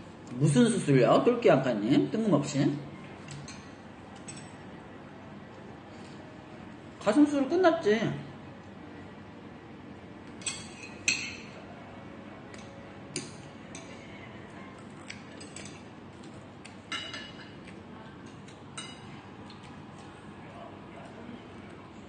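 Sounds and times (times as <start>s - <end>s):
cutlery clinking on ceramic plates: 10.3s - 11.6s, 15.2s - 15.9s, 16.9s - 19.2s.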